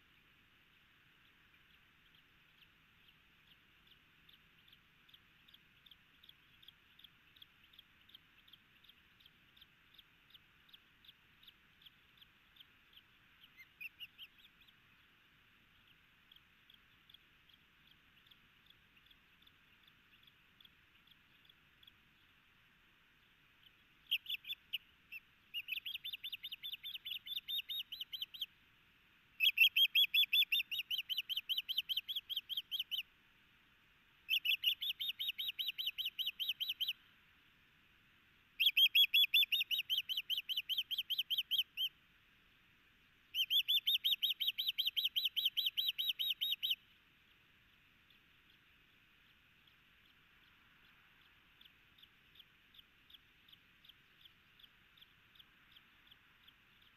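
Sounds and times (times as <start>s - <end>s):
osprey whistled chirps: 24.0s - 28.5s, 29.4s - 33.1s, 34.3s - 37.0s, 38.6s - 41.9s, 43.3s - 46.8s.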